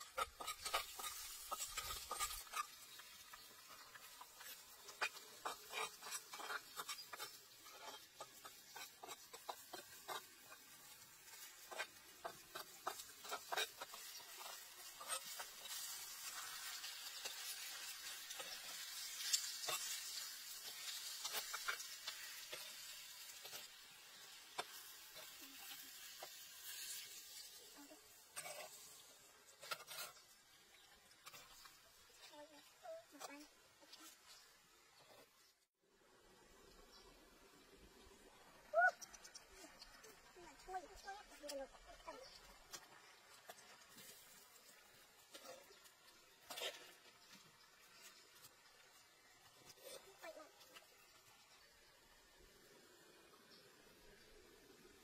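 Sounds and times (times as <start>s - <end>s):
spatula scraping a pan: 0.0s - 34.4s, 42.2s - 47.4s
paste sizzling in oil: 0.0s - 35.8s, 36.4s - 55.0s.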